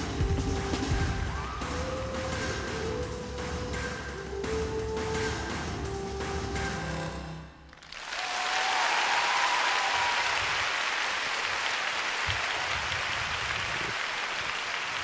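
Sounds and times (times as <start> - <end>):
music: 0.0 - 7.7
arena audience applauding and cheering: 7.7 - 15.0.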